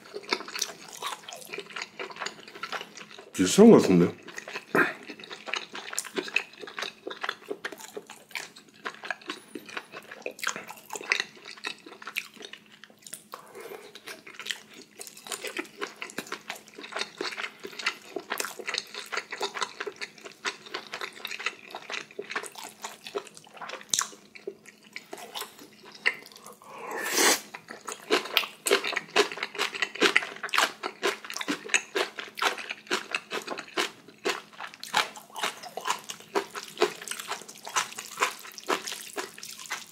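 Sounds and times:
wet chewing and mouth sounds: 0:00.0 - 0:39.9
slurping: 0:26.1 - 0:27.6.

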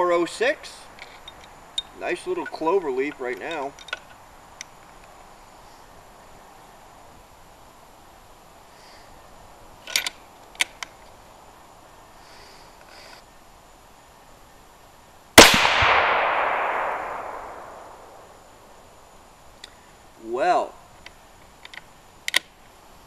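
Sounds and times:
rifle shot with echo: 0:15.4 - 0:18.4.

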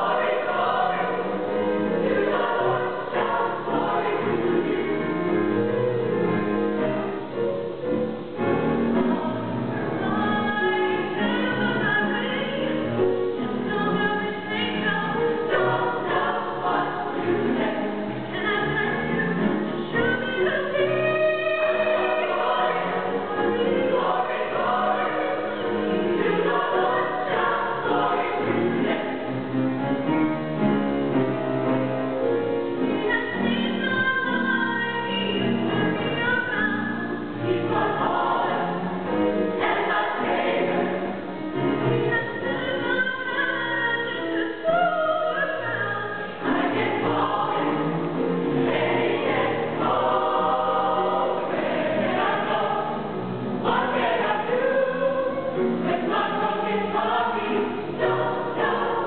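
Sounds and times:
choir singing gospel song: 0:00.0 - 0:30.3, 0:32.2 - 0:59.0.

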